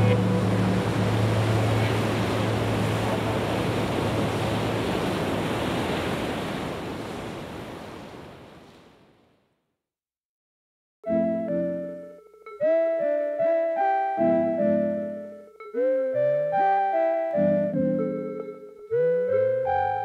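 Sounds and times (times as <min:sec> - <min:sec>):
low steady hum: 0:00.0 - 0:05.0
ocean surf rushing: 0:00.0 - 0:09.0.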